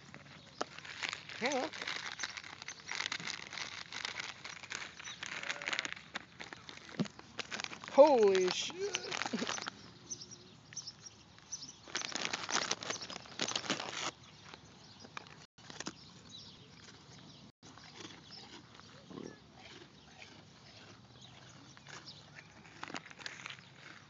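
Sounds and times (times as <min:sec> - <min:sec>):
crackling against microphone: 0:00.0 - 0:09.8, 0:10.8 - 0:16.0.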